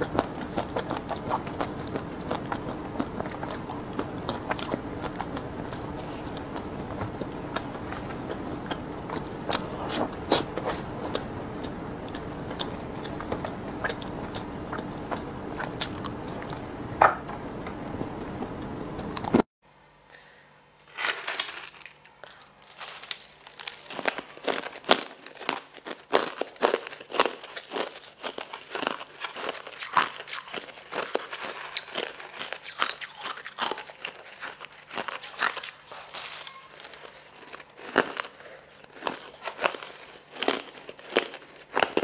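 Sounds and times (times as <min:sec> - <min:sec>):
chewing crunchy snacks: 0:00.0 - 0:16.8, 0:20.9 - 0:42.0
low steady hum: 0:00.0 - 0:25.3
crushed ice crunching: 0:20.9 - 0:29.8.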